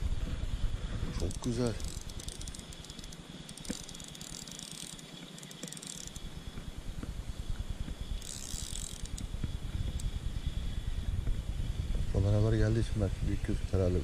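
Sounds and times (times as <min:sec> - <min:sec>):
fishing reel gears whirring: 0:01.1 - 0:06.6, 0:08.0 - 0:10.2.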